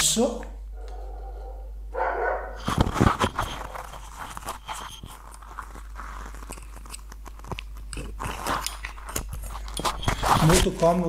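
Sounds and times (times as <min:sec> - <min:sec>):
steady low hum: 0:00.0 - 0:11.0
microphone handling rustle: 0:02.6 - 0:06.3, 0:09.3 - 0:11.0.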